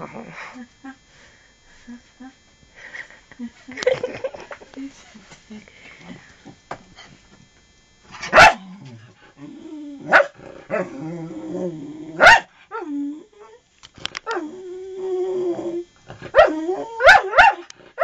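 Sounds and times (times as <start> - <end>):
dog barking: 8.3 - 8.6, 10.1 - 10.4, 12.2 - 12.5, 16.4 - 17.7.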